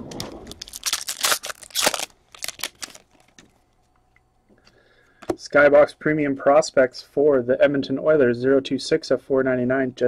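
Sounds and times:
foil wrapper crinkling and tearing: 0.2s - 3.4s.

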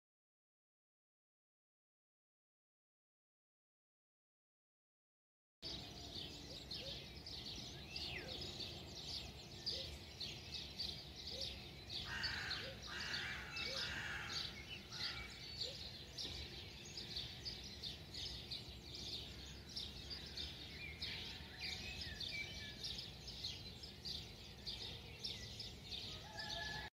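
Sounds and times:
small birds chirping: 5.6s - 26.9s
harsh caw-like bird calls: 12.0s - 15.6s.

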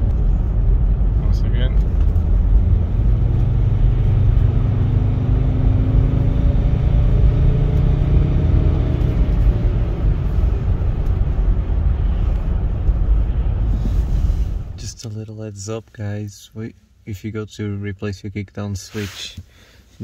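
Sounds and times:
diesel engine accelerating: 0.0s - 15.0s.

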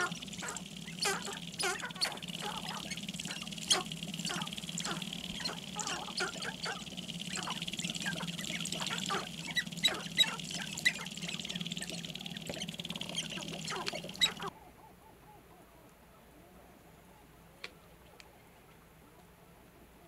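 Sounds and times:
grouse clucking and cackling: 0.0s - 15.4s
background bird chorus: 0.0s - 17.3s.

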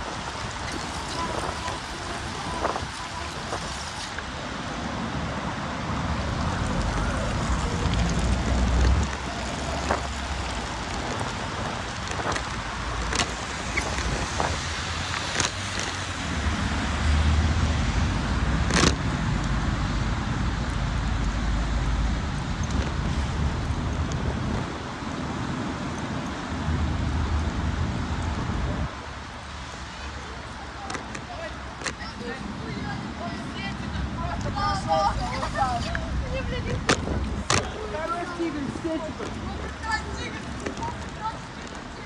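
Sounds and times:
bicycle riding on wet road: 0.0s - 42.0s
heavy rain: 0.0s - 42.0s.

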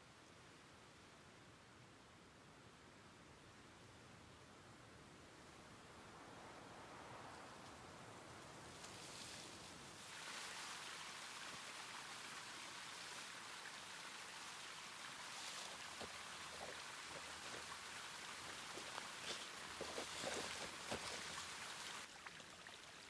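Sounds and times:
stream running: 6.1s - 23.0s
footsteps through dry undergrowth: 15.2s - 22.0s.

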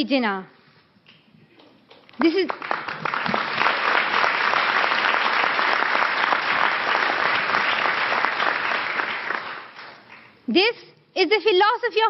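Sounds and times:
audience applauding: 1.6s - 10.4s.

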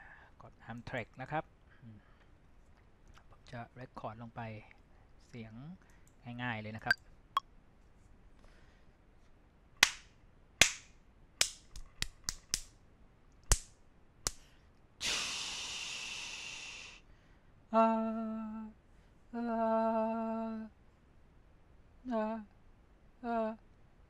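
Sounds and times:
hand claps: 9.8s - 12.7s
hiss: 15.0s - 17.0s.

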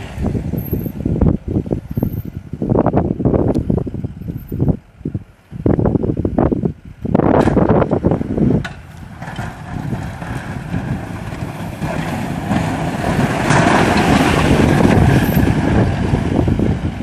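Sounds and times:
plow blade pushing snow: 0.0s - 2.4s, 7.0s - 17.0s
truck engine running: 0.0s - 17.0s
wind buffeting microphone: 0.0s - 17.0s.

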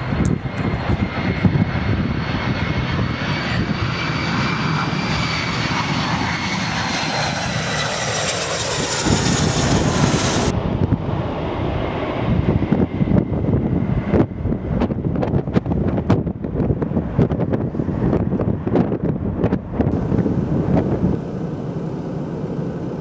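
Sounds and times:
jet engines whining: 0.0s - 23.0s
low dull rumble: 0.0s - 23.0s.

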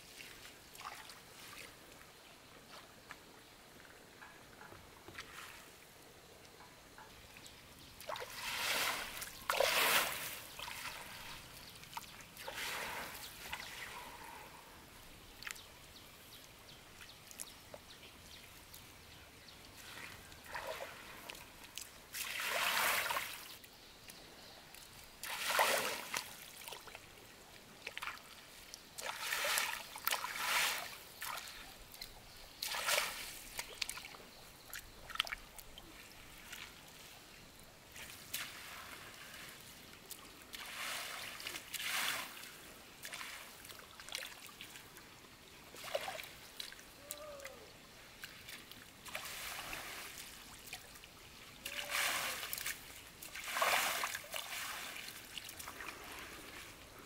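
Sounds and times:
net splashing and dripping water: 0.2s - 1.7s, 8.0s - 13.8s, 19.8s - 23.5s, 25.2s - 27.0s, 27.8s - 32.0s, 32.6s - 35.7s, 39.8s - 44.8s, 45.8s - 47.6s, 48.2s - 56.6s.

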